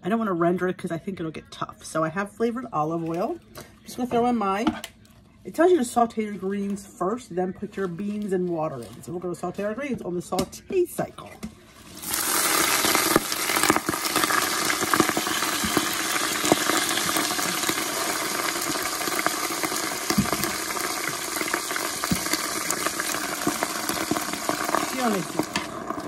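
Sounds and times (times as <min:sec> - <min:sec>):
greens sizzling in hot oil: 0:11.7 - 0:26.0.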